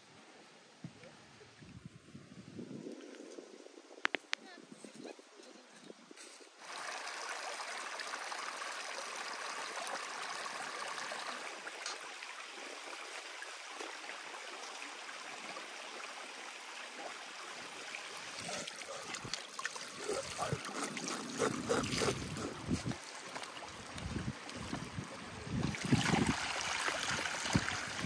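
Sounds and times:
stream running over stones: 5.4 - 28.0
water poured from jug splashing: 18.3 - 28.0.

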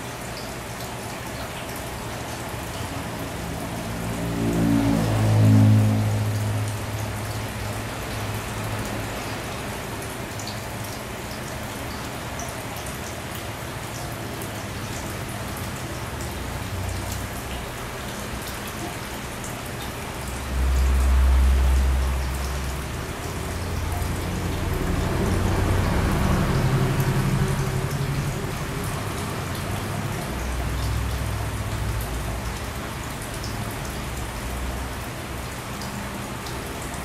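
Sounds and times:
aquarium water splashing and trickling: 0.0 - 37.0.

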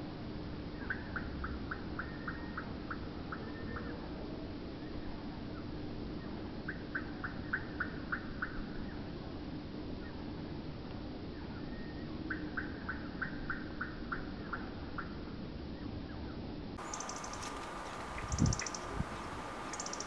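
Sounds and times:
steady low hum: 0.0 - 20.0
blackbird sharp call notes: 16.8 - 20.0.

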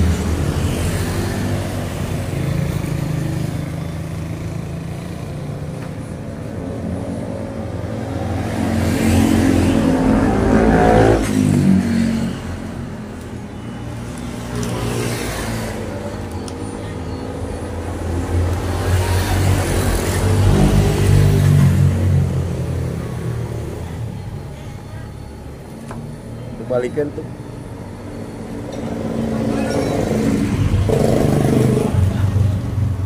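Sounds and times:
road traffic passing: 0.0 - 33.0
vehicle passing by: 6.6 - 12.8.

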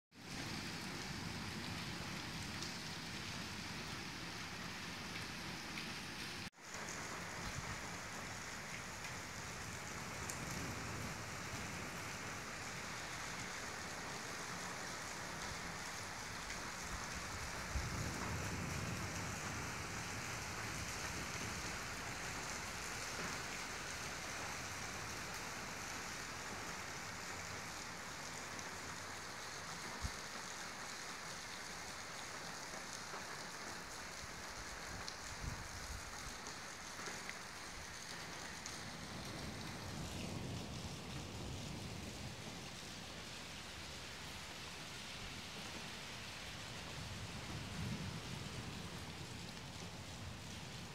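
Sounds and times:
rain splashing on surfaces: 0.1 - 50.9.

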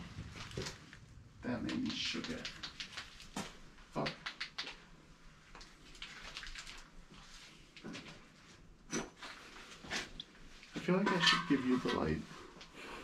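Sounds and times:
faint clicks and scuffs: 0.1 - 8.6.

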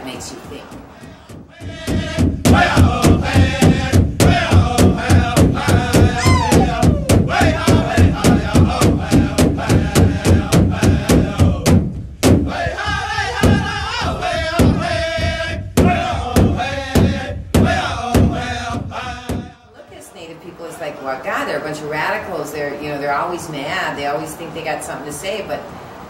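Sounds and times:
drum beaten steadily: 0.7 - 20.1
group of voices chanting: 0.9 - 11.8, 12.5 - 20.0.

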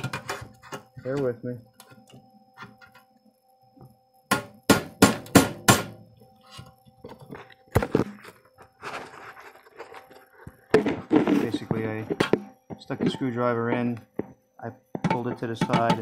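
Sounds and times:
hammer striking steel: 4.3 - 6.0.

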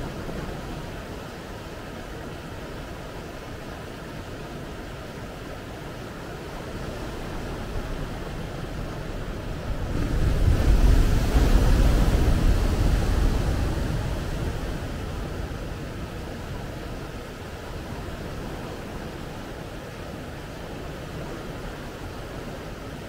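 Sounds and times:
ocean surf washing: 0.0 - 23.0
wave crashing: 9.3 - 16.5.

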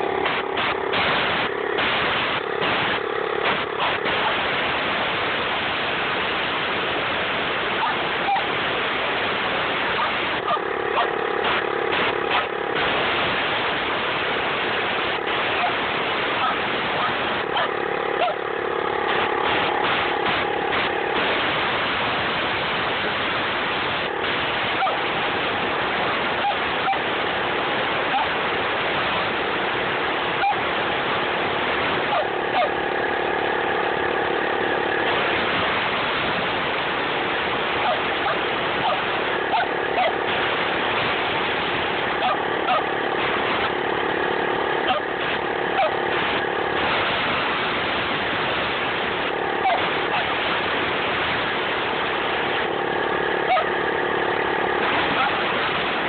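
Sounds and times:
compressed air hissing: 0.0 - 56.0
motor hum: 0.0 - 56.0
dog barking: 7.6 - 8.6, 9.9 - 11.2, 15.4 - 18.4, 24.7 - 25.1, 26.4 - 27.1, 28.0 - 28.4, 30.4 - 30.7, 32.0 - 32.8, 37.8 - 40.2, 42.2 - 42.9, 44.8 - 45.1, 45.7 - 46.0, 49.6 - 50.4, 53.4 - 53.8.

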